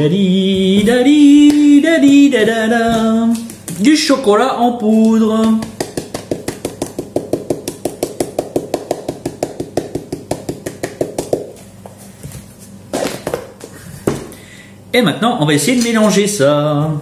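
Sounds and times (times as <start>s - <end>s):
hand tapping plastic tub: 5.0s - 12.0s.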